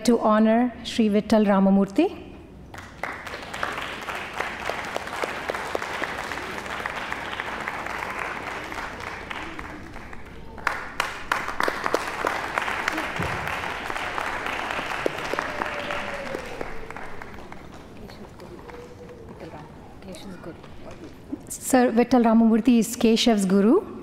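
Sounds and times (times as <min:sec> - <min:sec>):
audience applauding: 0:02.7 - 0:19.8.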